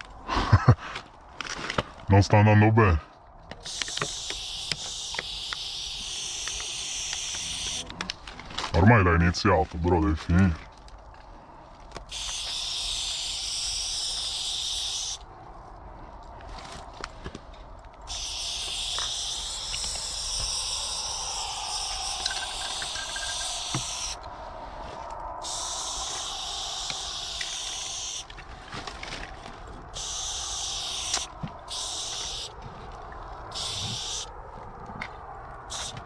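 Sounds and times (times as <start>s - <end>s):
spray paint can hissing: 3.6s - 7.8s, 12.1s - 15.2s, 18.1s - 24.2s, 25.4s - 28.3s, 30.0s - 32.5s, 33.6s - 34.3s, 35.7s - 36.0s.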